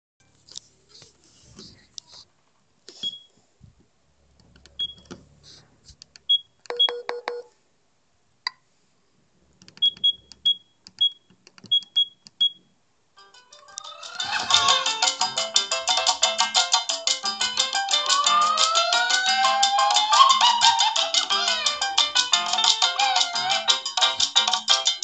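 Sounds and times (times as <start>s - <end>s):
high key-press beeps: 4.8s - 5.1s, 6.3s - 7.5s, 9.8s - 12.6s
phone ringtone: 13.2s - 25.0s.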